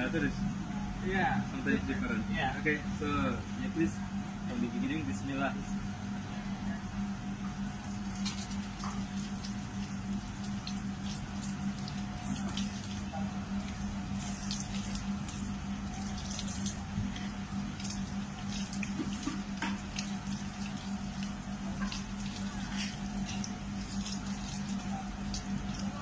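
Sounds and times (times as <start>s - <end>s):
steady low hum: 0.0s - 26.0s
tap water running and splashing: 7.7s - 26.0s
water drips: 7.8s - 26.0s.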